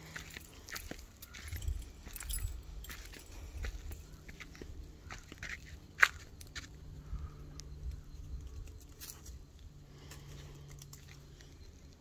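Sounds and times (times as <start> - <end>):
footsteps crunching on dirt trail: 0.0 - 7.4.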